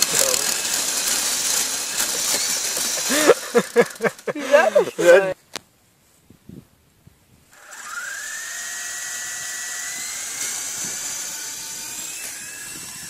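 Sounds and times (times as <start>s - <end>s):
small electric motor whine: 0.0s - 4.1s, 7.5s - 13.0s
rotor hiss: 0.0s - 5.4s.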